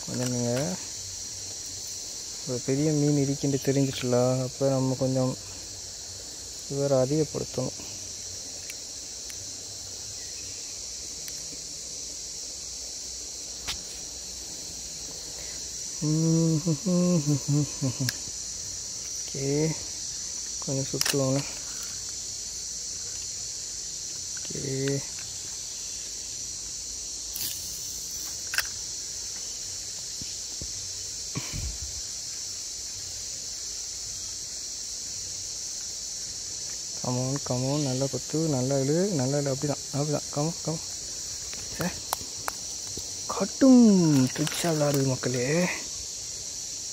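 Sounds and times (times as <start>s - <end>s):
crickets shrilling: 0.0s - 46.9s
insect chorus: 0.0s - 46.9s
sharp click: 27.3s - 28.8s.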